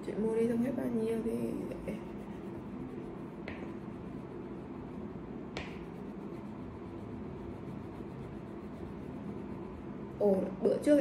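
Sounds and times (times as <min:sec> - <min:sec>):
crayon rubbing on paper: 0:01.4 - 0:05.1, 0:05.7 - 0:09.9.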